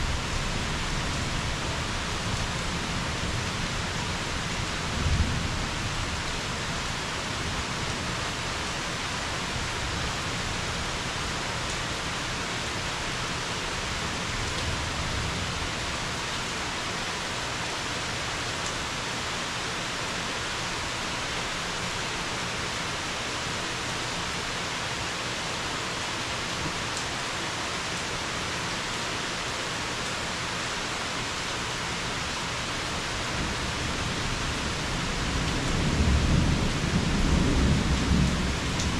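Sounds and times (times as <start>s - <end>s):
low rumble of thunder: 0.0s - 6.8s, 33.3s - 38.9s
steady rain hiss: 0.0s - 38.9s.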